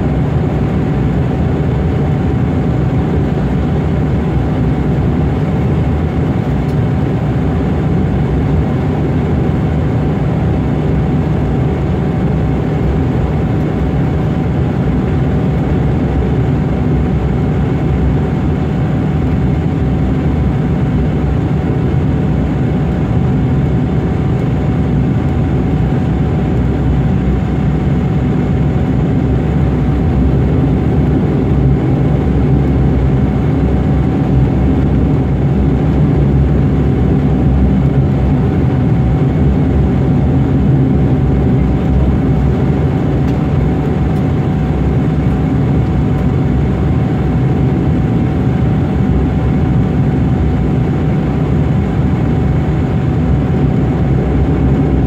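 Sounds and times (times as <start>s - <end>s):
aircraft engines rumbling: 0.0s - 55.0s
engine whine: 0.0s - 55.0s.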